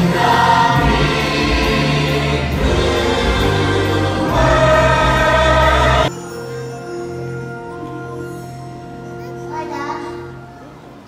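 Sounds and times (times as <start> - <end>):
cast singing with musical accompaniment: 0.0 - 9.4.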